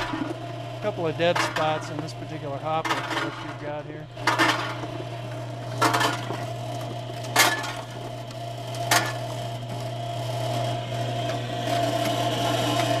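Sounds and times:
conveyor mechanical hum: 0.0s - 13.0s.

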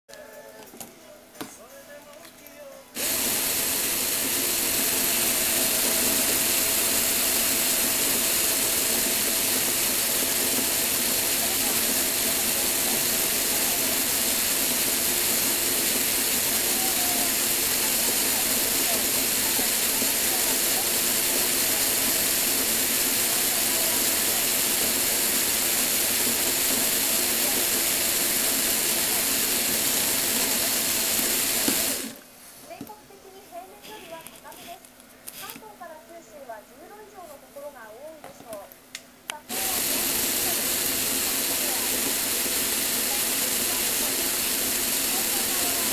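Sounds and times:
motors and plastic gears whirring: 3.0s - 32.2s, 39.5s - 45.9s.

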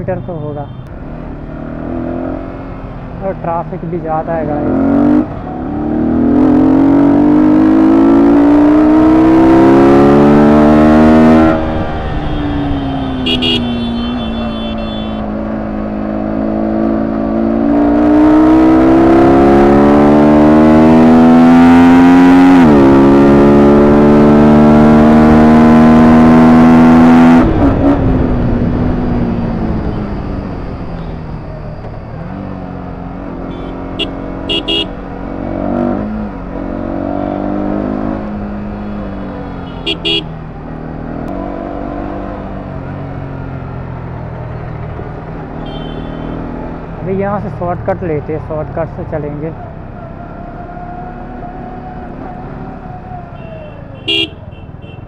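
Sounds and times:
motorcycle engine revving: 1.0s - 55.0s.

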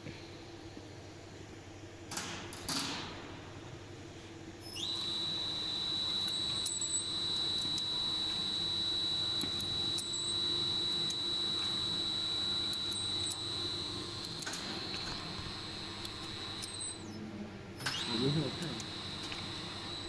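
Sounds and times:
machine high-pitched whine: 4.5s - 20.0s.

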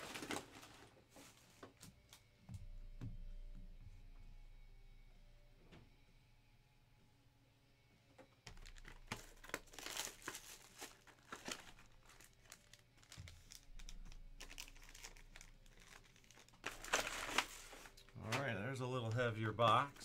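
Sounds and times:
plastic wrapping crinkling: 0.0s - 1.0s, 8.5s - 18.4s.

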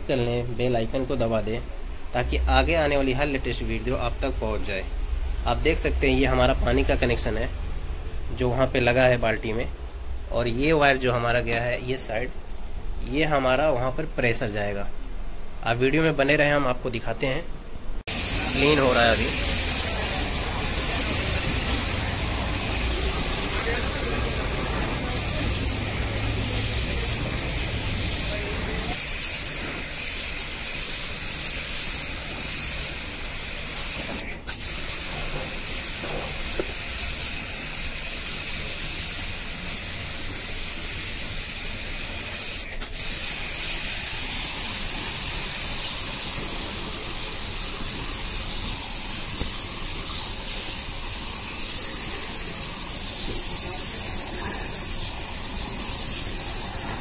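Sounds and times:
water jet spraying metal fins: 18.1s - 57.0s.

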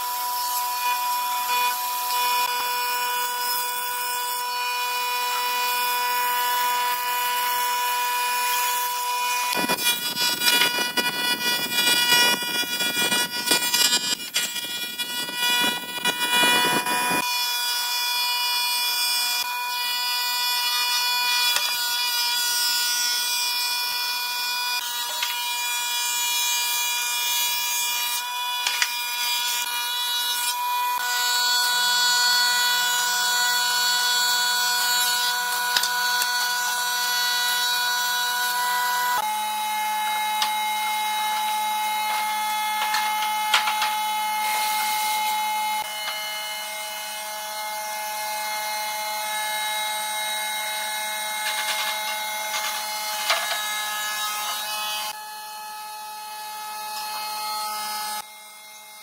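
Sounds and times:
thickness planer whining: 0.0s - 18.3s, 28.1s - 55.2s.

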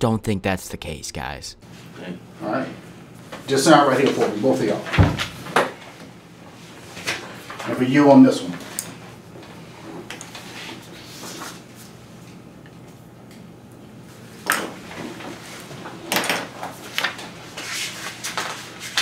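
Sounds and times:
low room hum: 0.0s - 19.0s
paper rustling and clattering: 14.6s - 19.0s.

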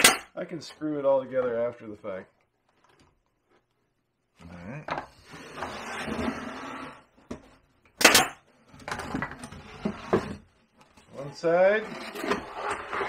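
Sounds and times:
nailer sharp crack: 8.0s - 8.4s.

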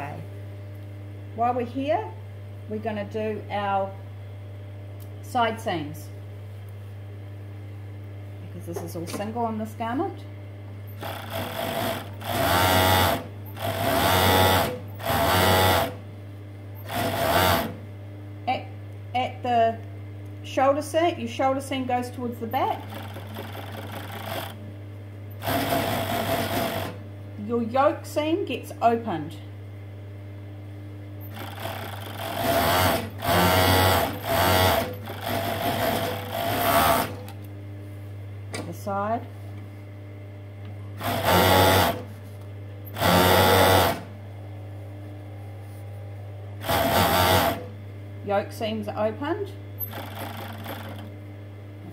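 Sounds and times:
steady low hum: 0.0s - 51.9s
overlocker stitching: 22.7s - 24.6s, 31.3s - 37.4s, 43.0s - 44.1s, 46.6s - 47.7s, 49.8s - 51.1s.

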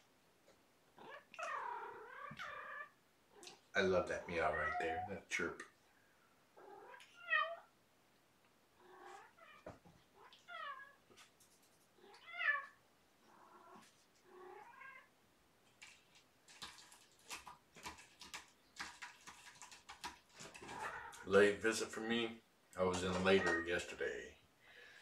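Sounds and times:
cat meowing: 4.4s - 5.1s, 6.6s - 7.7s, 12.0s - 15.1s
light scratchy clicks: 22.7s - 23.8s.

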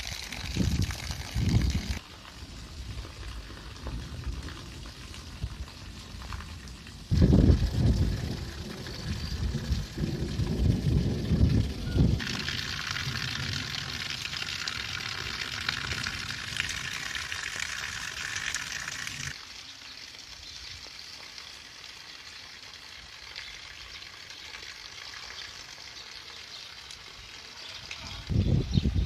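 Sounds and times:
heavy rain pouring: 0.0s - 19.4s.

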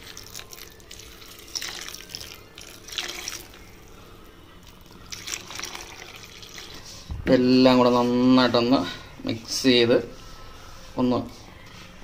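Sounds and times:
coconut milk pouring into pan: 0.0s - 3.6s, 4.8s - 6.8s.

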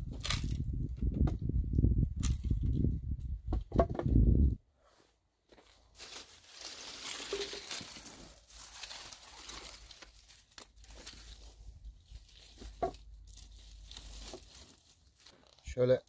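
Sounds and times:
twigs snapping: 0.1s - 0.7s, 2.2s - 2.8s, 6.0s - 11.6s, 12.2s - 15.6s
leafy branches rustling: 5.5s - 15.8s.

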